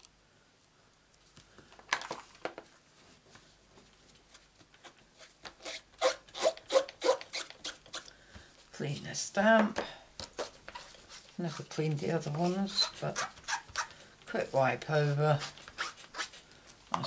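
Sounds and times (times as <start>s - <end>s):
cloth rubbing over a stamp: 10.3s - 16.4s.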